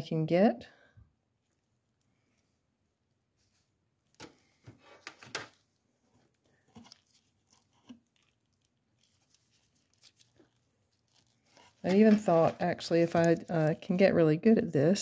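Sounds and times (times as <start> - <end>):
handling clicks and rustles: 5.0 - 14.1.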